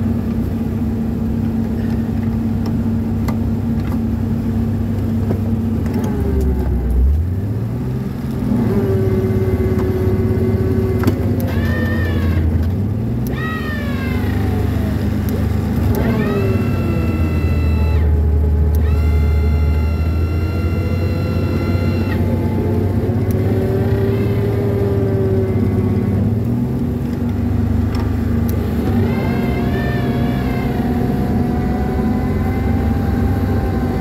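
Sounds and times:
tractor engine revving: 8.3s - 34.0s
short high-pitched whines: 15.9s - 22.6s.

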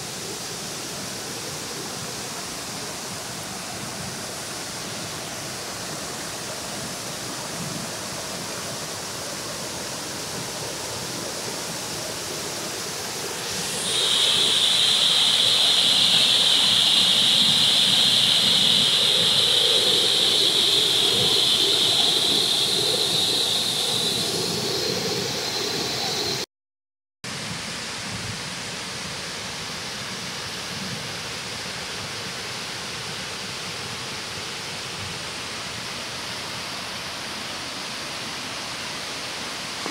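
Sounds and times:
water rushing over weir: 0.0s - 26.4s, 29.0s - 39.9s
loud high buzz: 13.1s - 26.4s.

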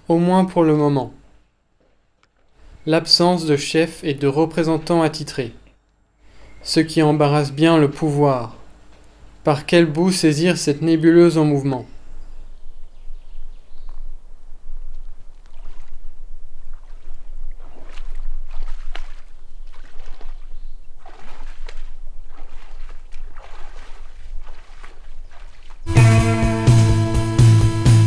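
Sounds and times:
shallow water sloshing and splashing: 14.6s - 25.9s.

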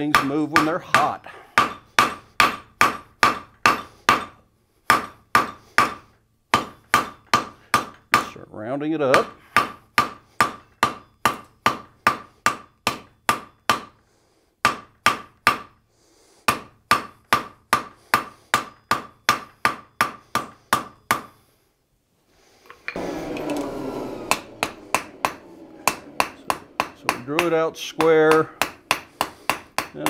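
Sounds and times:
hammer striking steel on anvil: 0.0s - 8.4s, 9.1s - 14.0s, 16.5s - 21.4s, 22.9s - 30.0s
steady rushing noise: 23.0s - 29.8s.

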